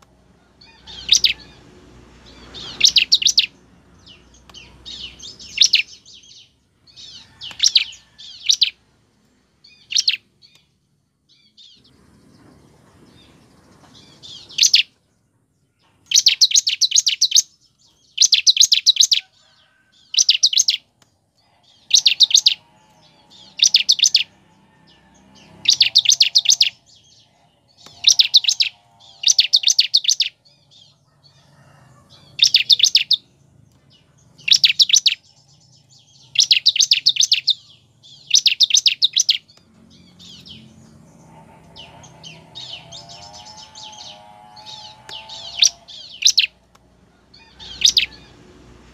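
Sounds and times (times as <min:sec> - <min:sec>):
bird trilling song: 0:00.0 - 0:15.1, 0:15.7 - 0:48.5.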